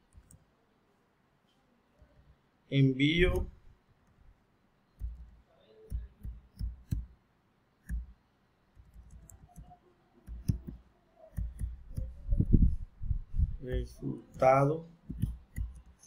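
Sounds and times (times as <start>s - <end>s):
typing on computer keyboard: 5.0s - 7.1s, 8.8s - 12.4s, 13.7s - 16.0s.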